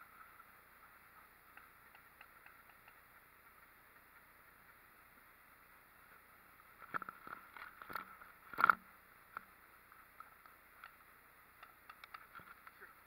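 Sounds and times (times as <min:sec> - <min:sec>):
sharp knocks and clicks: 0:01.5 - 0:03.7, 0:11.6 - 0:12.8.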